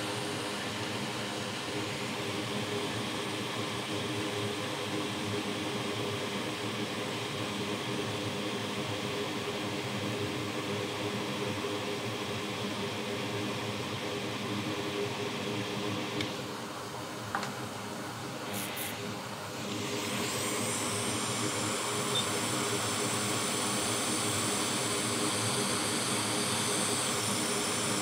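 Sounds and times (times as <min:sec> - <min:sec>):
hot air station whirring: 0:00.0 - 0:07.3, 0:14.1 - 0:28.0.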